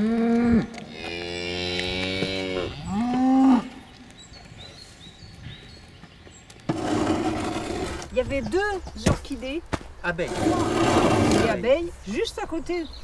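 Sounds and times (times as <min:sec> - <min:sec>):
cows mooing: 0:00.0 - 0:03.8.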